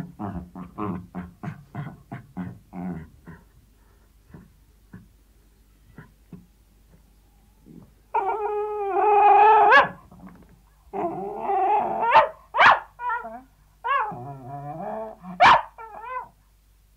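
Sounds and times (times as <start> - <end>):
dog whining: 7.6 - 9.9, 13.0 - 16.3
dog yelping: 8.2 - 10.0, 12.0 - 14.2, 15.4 - 16.3.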